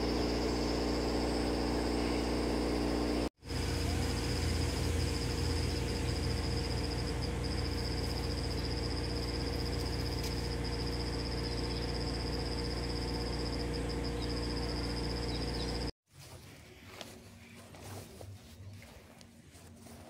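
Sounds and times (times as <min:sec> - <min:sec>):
high-pitched insect trill: 0:00.0 - 0:15.9
low steady hum: 0:00.0 - 0:20.0.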